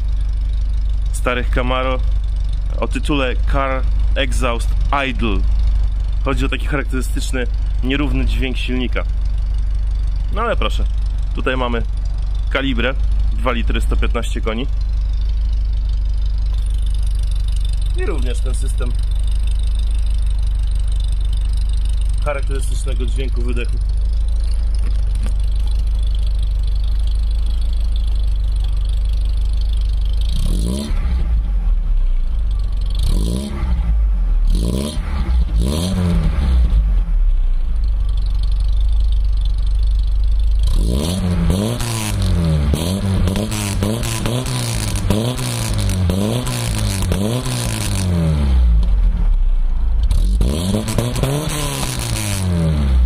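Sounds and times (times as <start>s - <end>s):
car exhaust rumbling: 0.0s - 53.0s.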